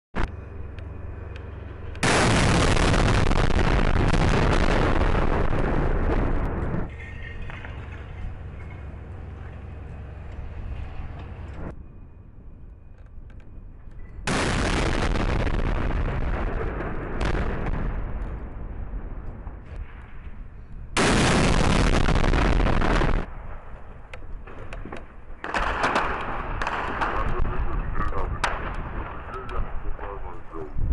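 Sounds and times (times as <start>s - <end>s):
engine idling rumble: 0.2s - 30.8s
tank gun blast: 1.9s - 9.0s, 14.2s - 29.5s.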